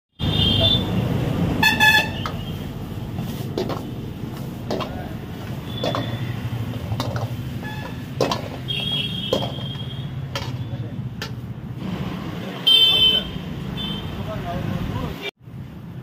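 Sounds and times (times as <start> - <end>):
vehicle horn honking: 0.2 - 1.0, 1.6 - 2.6, 7.6 - 10.1, 12.6 - 14.2
steel ladle clanking against wok: 3.6 - 11.5.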